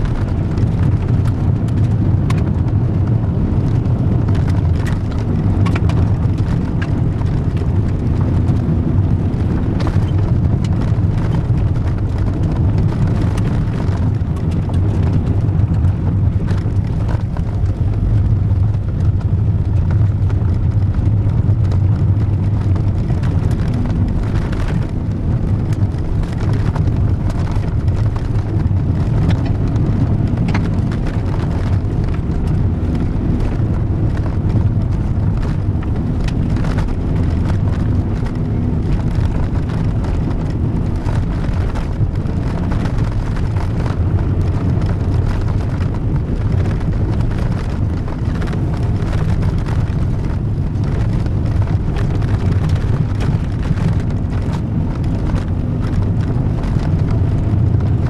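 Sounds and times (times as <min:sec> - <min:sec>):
car engine drone: 0:00.0 - 0:58.0
gravel striking car: 0:00.0 - 0:58.0
tyre and road noise: 0:00.0 - 0:58.0.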